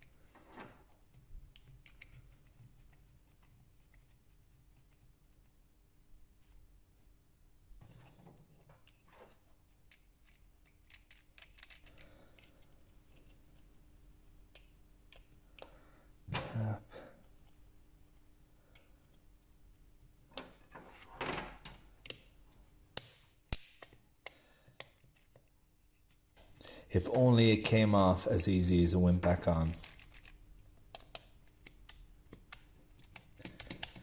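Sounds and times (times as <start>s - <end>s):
plastic parts clicking and knocking: 8.1s - 12.6s, 29.7s - 34.0s.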